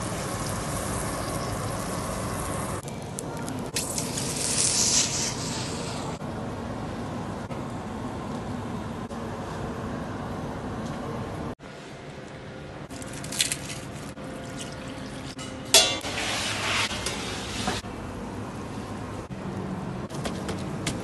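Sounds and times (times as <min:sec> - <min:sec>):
hissing from pot: 0:00.0 - 0:02.9, 0:03.6 - 0:06.2
metal pot lid clank: 0:15.4 - 0:16.2.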